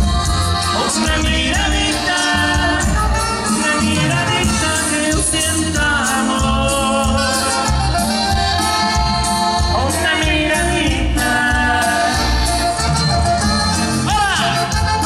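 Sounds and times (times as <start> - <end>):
live band music: 0.0 - 15.0.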